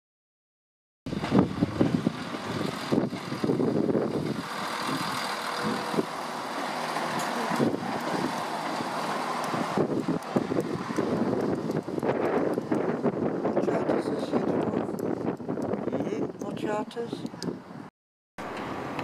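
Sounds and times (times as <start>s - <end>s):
diesel train engine and rail noise: 1.1s - 16.4s, 17.1s - 19.0s
wind buffeting microphone: 1.1s - 17.9s.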